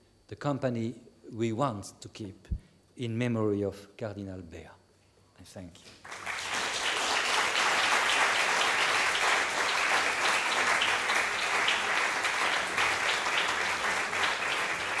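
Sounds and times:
audience applauding: 6.0 - 15.0.

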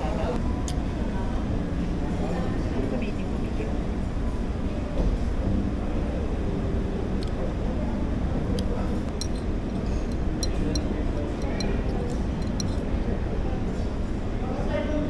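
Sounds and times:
low hum: 0.0 - 14.4
tableware clinking: 9.1 - 12.8.

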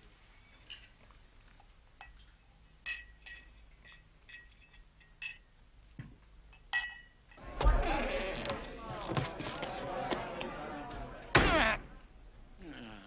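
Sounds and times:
glassware and cutlery clinking: 0.5 - 1.1, 2.0 - 5.6, 6.5 - 7.8.

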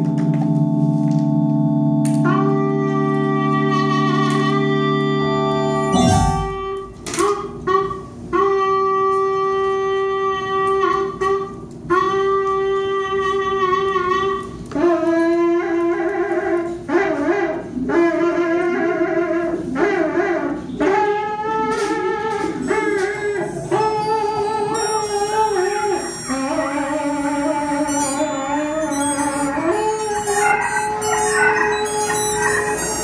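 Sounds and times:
experimental jazz band playing: 1.9 - 15.6, 20.6 - 33.0.

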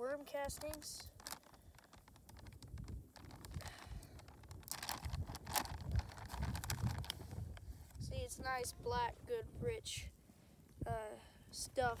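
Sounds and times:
bag crackling and rustling: 0.0 - 8.0
low rumble: 2.6 - 8.2.

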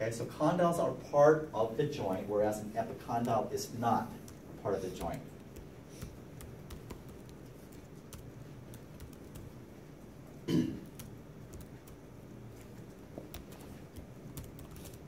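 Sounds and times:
person coughing: 10.4 - 10.9.

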